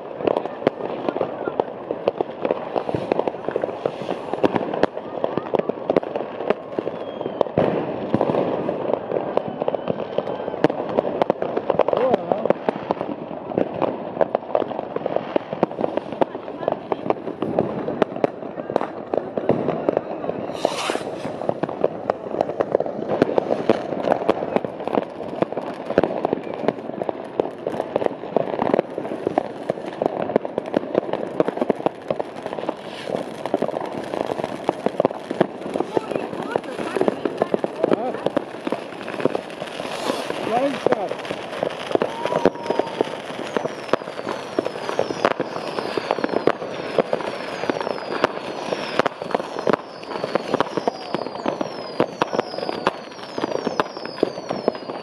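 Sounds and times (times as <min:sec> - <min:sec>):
fireworks bangs and crackling: 0:00.0 - 0:55.0
faint high whistle: 0:06.9 - 0:07.6, 0:09.3 - 0:10.6, 0:19.8 - 0:21.5, 0:42.0 - 0:46.7, 0:47.3 - 0:55.0.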